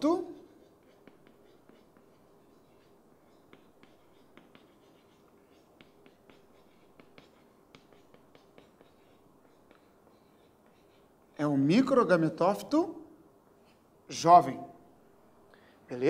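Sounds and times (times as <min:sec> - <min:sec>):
chalk tapping and scratching: 0:00.0 - 0:12.0.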